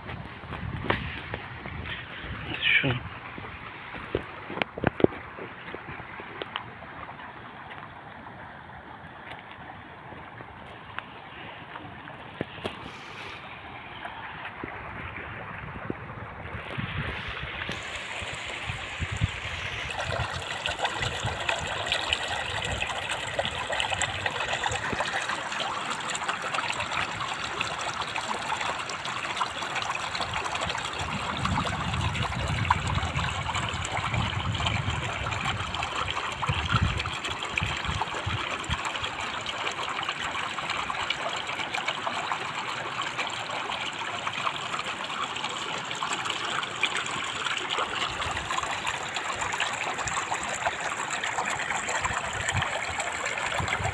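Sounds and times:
river water splashing over rocks: 0:17.2 - 0:53.9.

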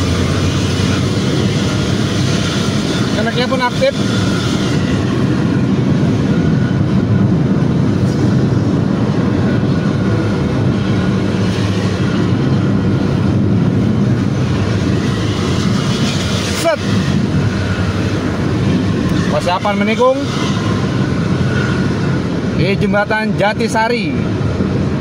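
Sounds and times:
bus diesel engine droning: 0:00.0 - 0:19.4
road noise: 0:00.0 - 0:25.0.

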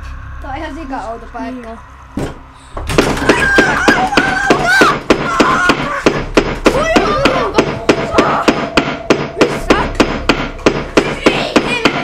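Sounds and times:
higher pitched rising sounds: 0:00.0 - 0:04.2
rapid even banging: 0:02.2 - 0:12.0.

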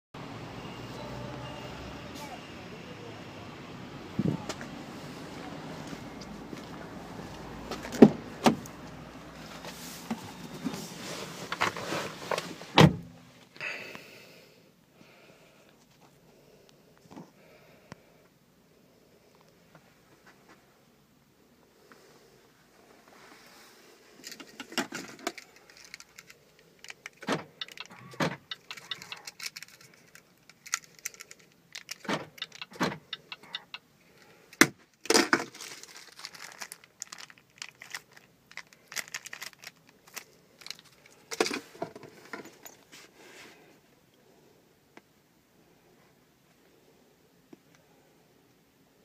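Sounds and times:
keyring rattling and clicking: 0:25.3 - 0:33.7.

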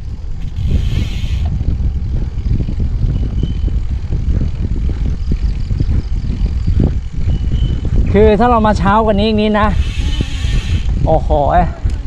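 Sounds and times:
faint tyre noise on concrete: 0:00.0 - 0:08.5
wind buffeting microphone: 0:00.0 - 0:12.0.

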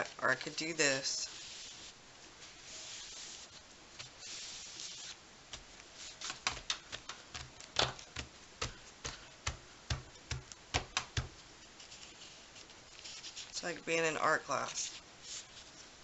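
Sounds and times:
paper rubbing: 0:01.1 - 0:05.2, 0:05.8 - 0:09.3, 0:11.2 - 0:13.6, 0:14.6 - 0:15.9
hands patting paper: 0:01.4 - 0:13.6.

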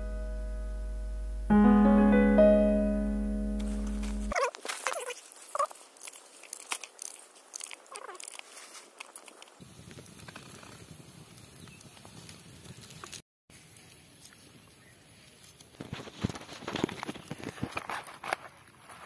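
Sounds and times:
outdoor background hiss: 0:00.0 - 0:04.3.

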